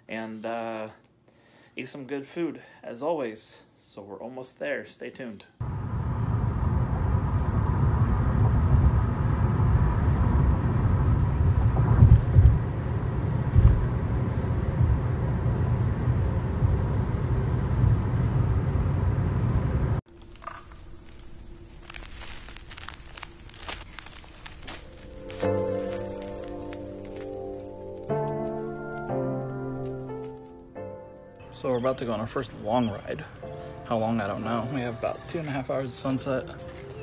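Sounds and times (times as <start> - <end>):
car road and engine rumble: 5.6 - 20.1
plastic package crackling: 20.1 - 30.6, 35.3 - 37.0.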